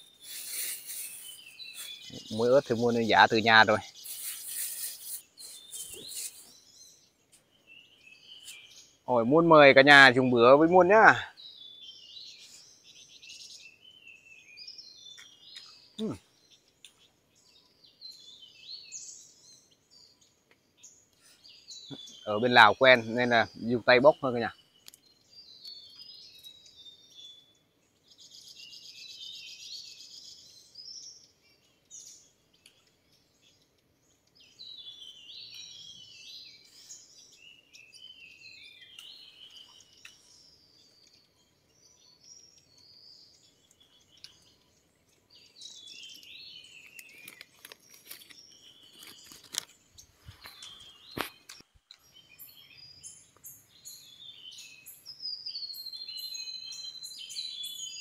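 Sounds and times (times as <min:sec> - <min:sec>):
buzzy bird trill: 0:00.0 - 0:07.1
birds chirping and twittering: 0:00.0 - 0:58.0.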